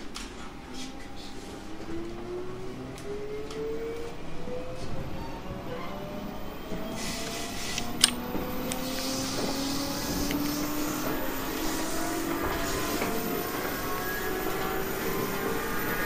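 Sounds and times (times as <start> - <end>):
electric train motor whine: 0.0 - 16.0
sharp click: 7.8 - 9.1.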